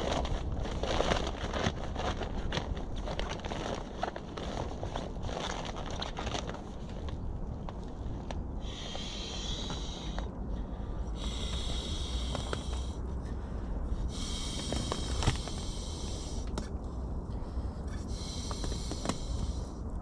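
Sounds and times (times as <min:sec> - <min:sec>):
low wind rumble: 0:00.0 - 0:20.0
air hissing through a valve: 0:08.6 - 0:10.2, 0:14.1 - 0:16.5, 0:18.1 - 0:19.8.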